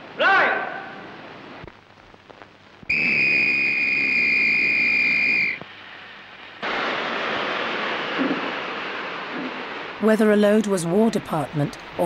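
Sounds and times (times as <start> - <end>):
high whistle blast: 2.9 - 5.6.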